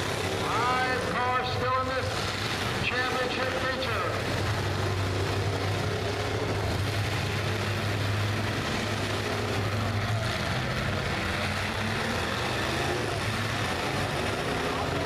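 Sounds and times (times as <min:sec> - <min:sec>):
car engines droning: 0:00.0 - 0:15.0.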